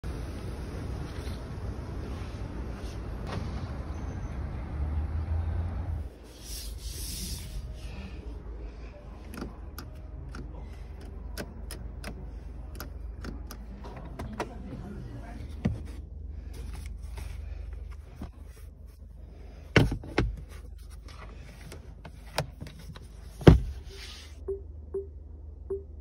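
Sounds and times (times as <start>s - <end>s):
car controls clicking: 9.2s - 14.6s.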